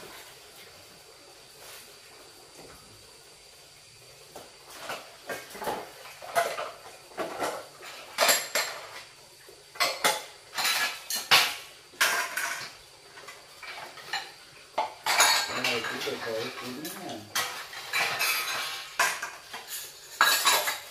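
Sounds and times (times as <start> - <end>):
dishes and utensils clinking: 4.7 - 9.1, 9.7 - 20.9.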